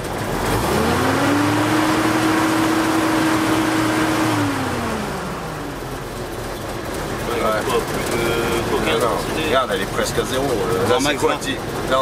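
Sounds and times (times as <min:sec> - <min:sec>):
truck engine revving: 0:00.0 - 0:12.0.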